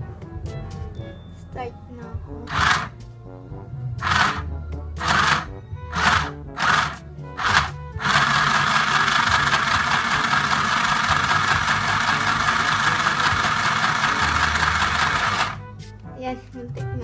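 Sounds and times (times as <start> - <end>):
sewing machine running: 2.5 - 3.0, 4.0 - 15.6.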